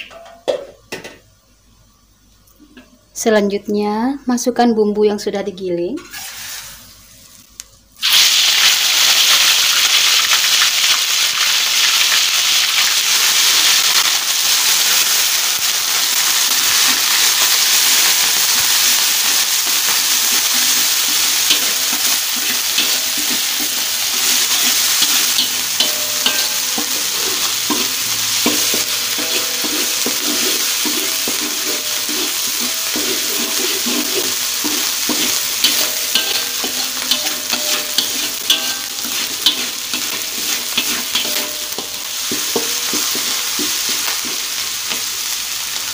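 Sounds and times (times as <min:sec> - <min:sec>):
spice paste sizzling in oil: 0:06.1 - 0:45.9
spatula scraping wok: 0:13.3 - 0:45.7.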